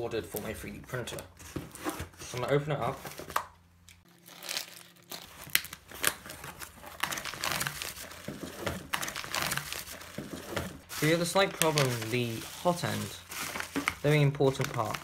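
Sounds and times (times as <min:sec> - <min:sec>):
bubble wrap crinkling: 0:04.0 - 0:15.0
cardboard parcel pulled open: 0:04.1 - 0:15.0.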